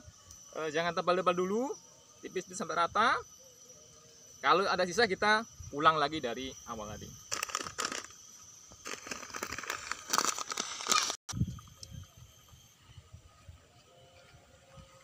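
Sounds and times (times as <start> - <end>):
plastic bag crinkling: 8.9 - 11.2.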